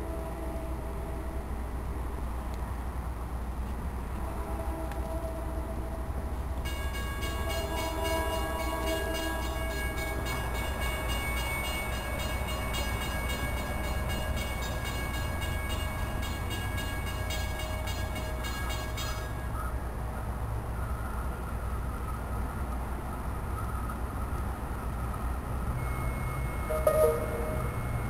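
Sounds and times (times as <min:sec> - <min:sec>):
distant train horn: 0:00.0 - 0:01.5, 0:04.1 - 0:19.7, 0:25.8 - 0:28.0
train rumble: 0:00.0 - 0:28.0
high-pitched ringing tones: 0:06.7 - 0:19.7, 0:25.8 - 0:28.0.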